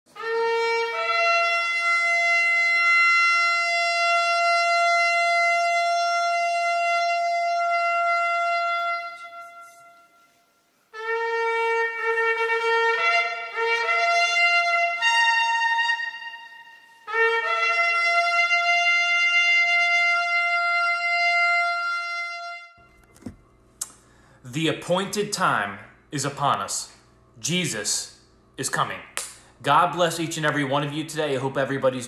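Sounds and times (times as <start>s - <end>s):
shofar blasts: 0.1s - 23.4s.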